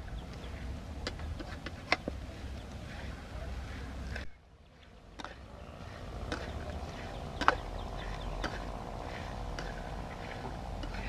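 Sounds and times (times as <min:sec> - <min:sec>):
low rumble: 0:02.2 - 0:11.0.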